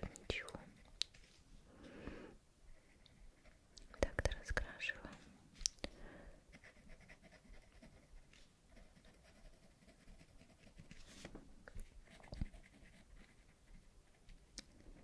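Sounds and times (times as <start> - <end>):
crayon scratching on paper: 6.5 - 11.3, 12.0 - 13.9.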